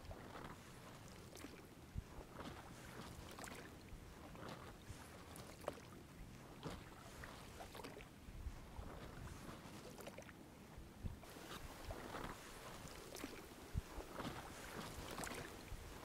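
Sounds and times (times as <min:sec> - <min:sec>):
oars splashing in water: 0:00.0 - 0:10.4, 0:11.2 - 0:16.0.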